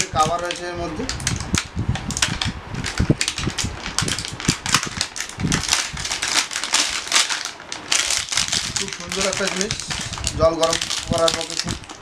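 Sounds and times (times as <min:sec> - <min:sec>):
plastic wrapping crinkling: 0:00.2 - 0:12.0.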